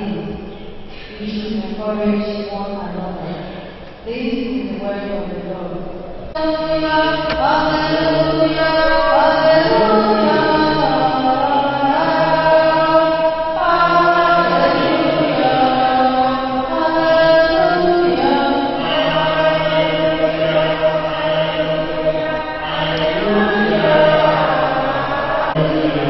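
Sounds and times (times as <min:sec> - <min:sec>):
woman singing into microphone: 0:06.4 - 0:26.0.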